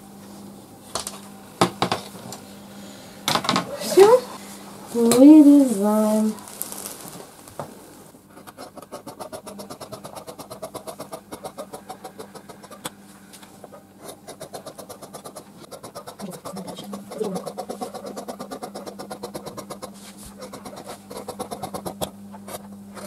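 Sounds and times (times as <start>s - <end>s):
shears snipping fabric: 5.0s - 7.6s, 8.3s - 11.2s, 14.0s - 23.0s.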